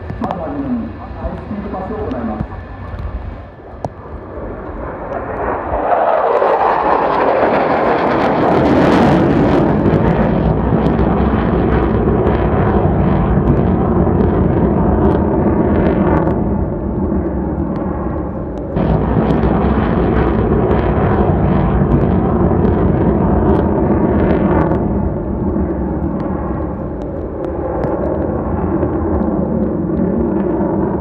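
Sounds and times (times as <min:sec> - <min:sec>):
jet engine roar: 0:00.0 - 0:31.0.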